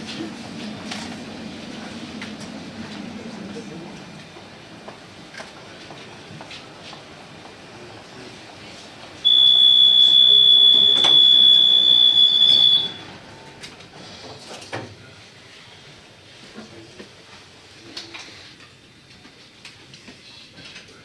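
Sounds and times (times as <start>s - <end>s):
tram interior rumble and clicks: 0.0s - 9.3s, 12.9s - 15.4s, 16.4s - 21.0s
high-pitched door warning beep: 9.2s - 13.1s.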